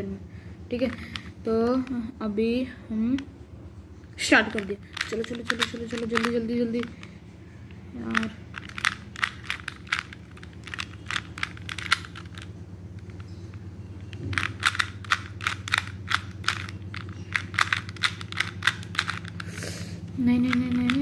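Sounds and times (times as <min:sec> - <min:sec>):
puzzle cube plastic clacking: 0:00.8 - 0:02.0, 0:04.5 - 0:07.2, 0:08.0 - 0:19.6, 0:20.3 - 0:21.0.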